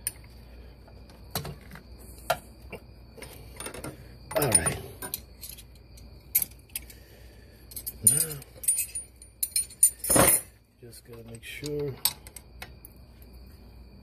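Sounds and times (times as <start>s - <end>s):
wrenches clinking on metal nuts: 3.6s - 6.9s, 7.7s - 10.5s.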